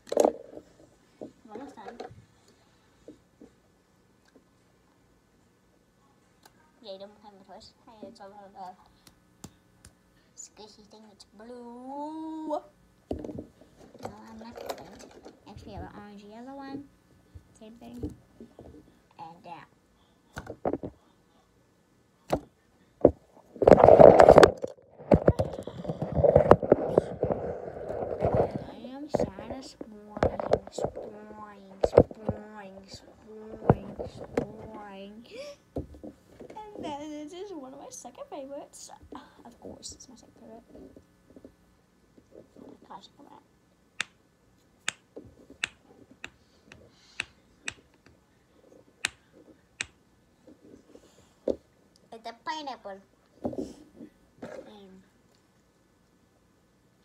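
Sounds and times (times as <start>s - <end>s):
phone scraping and rubbing: 23.6s - 29.4s
stress ball snapping clicks: 44.0s - 44.2s, 44.8s - 46.4s, 47.2s - 48.2s, 49.8s - 50.0s.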